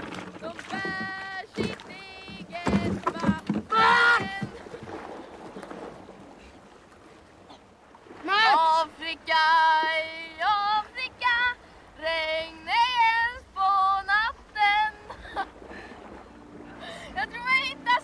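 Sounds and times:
high voice singing wordless tune: 0.4s - 4.6s, 8.2s - 15.1s, 17.1s - 18.0s.

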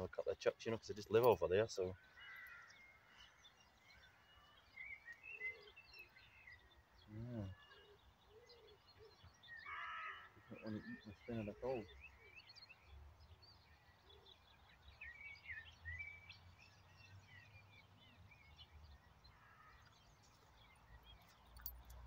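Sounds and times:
birds chirping and twittering: 0.0s - 22.0s.

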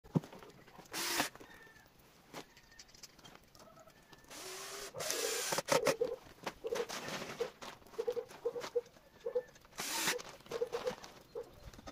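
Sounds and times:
cordless drill drilling into log: 0.9s - 1.4s, 4.3s - 5.8s, 9.8s - 10.2s
birds cooing: 5.0s - 9.6s.

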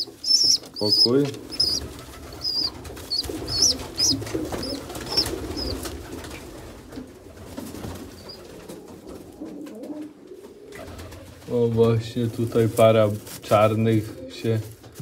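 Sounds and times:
pigeons cooing: 0.0s - 11.4s.

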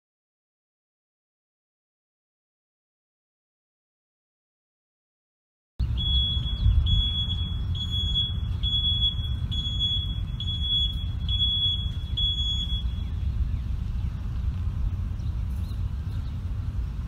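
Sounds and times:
bus backup alarm beeping: 5.8s - 13.2s
low rumble: 5.8s - 17.0s.

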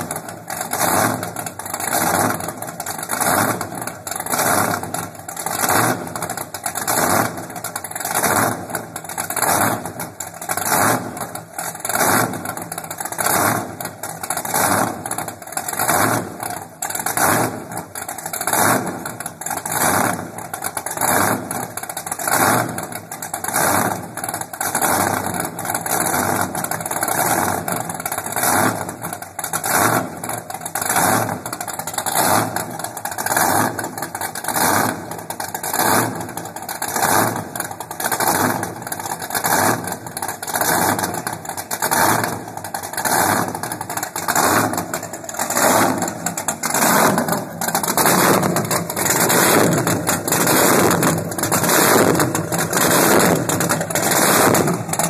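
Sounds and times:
powerboat engine running: 0.5s - 11.2s, 29.6s - 55.0s.

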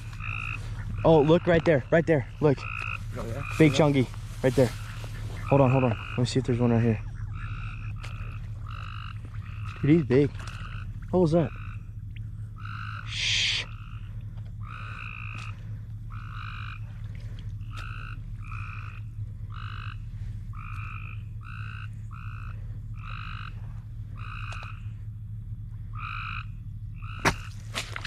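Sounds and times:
frog calling: 0.0s - 28.0s.

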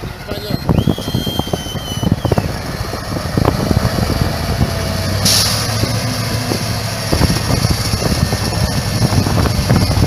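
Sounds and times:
diesel engine running under load: 0.0s - 10.0s
hissing burst: 5.2s - 5.8s.

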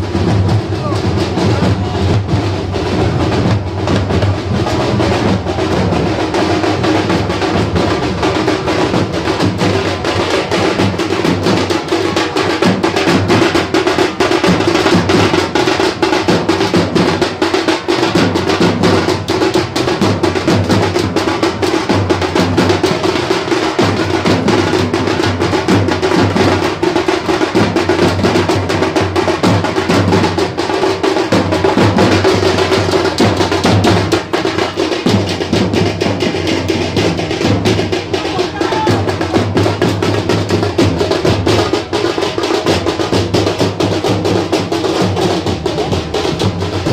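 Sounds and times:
drums playing fast beat: 0.0s - 46.9s.

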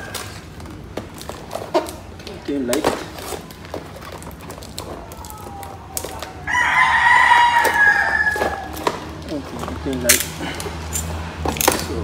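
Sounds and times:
cardboard rustling: 0.0s - 6.6s
rooster crowing: 5.3s - 9.0s.

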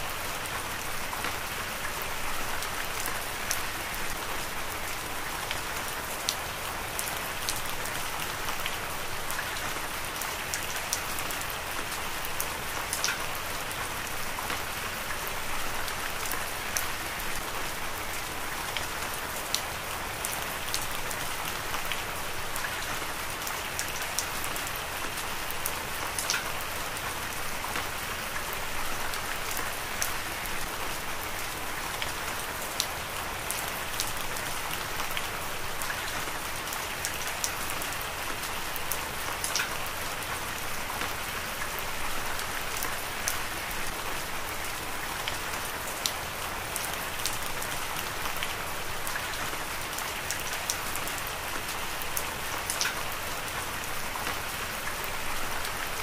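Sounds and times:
heavy rain falling: 0.0s - 56.0s.

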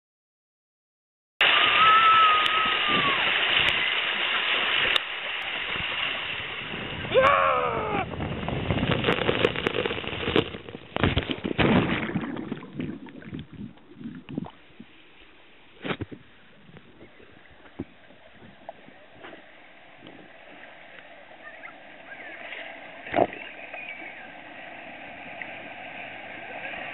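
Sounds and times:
water rushing down a slide: 1.4s - 14.6s, 17.7s - 26.9s
person crying out: 7.1s - 8.1s.

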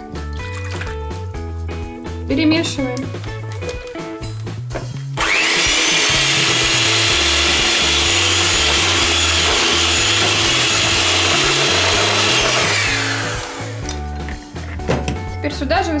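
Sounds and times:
electric hand mixer whine: 5.2s - 13.9s.

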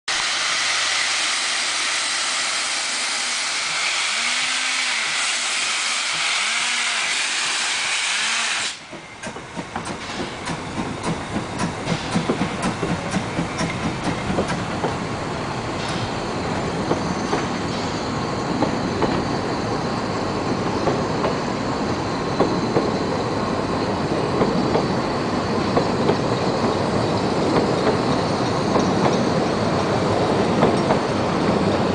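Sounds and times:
hiss of escaping steam: 0.1s - 16.4s
steam locomotive exhaust chuffs: 0.1s - 19.2s
train wheels clattering on rails: 5.0s - 19.5s, 20.4s - 21.6s, 22.3s - 23.1s, 24.1s - 31.9s.

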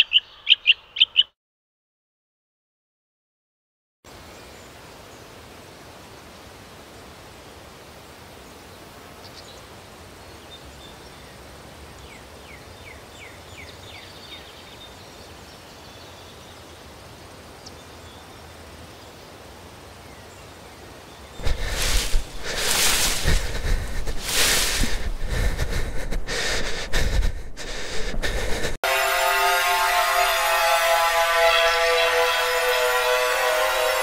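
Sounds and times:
woodland ambience hiss: 4.1s - 28.2s.

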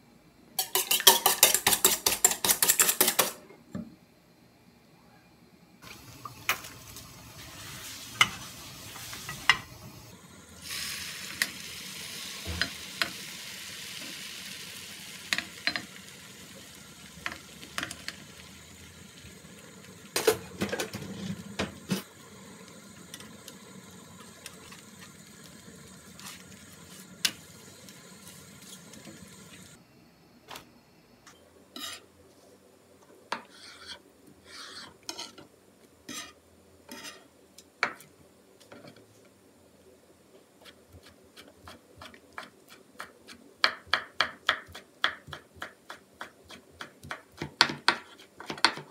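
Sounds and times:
egg sizzling in a frying pan: 5.8s - 29.8s
utensil scraping a pan: 31.8s - 32.1s, 33.3s - 35.5s, 36.1s - 37.3s.

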